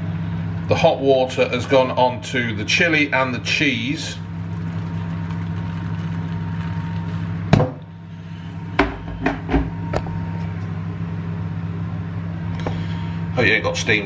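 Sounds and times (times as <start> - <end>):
microwave oven humming: 0.0 - 14.0
kettle set down clunk: 8.8 - 10.1.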